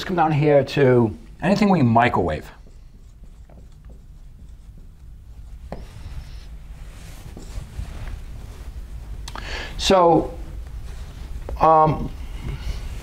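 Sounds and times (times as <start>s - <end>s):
marker scratching on whiteboard: 1.4s - 7.7s.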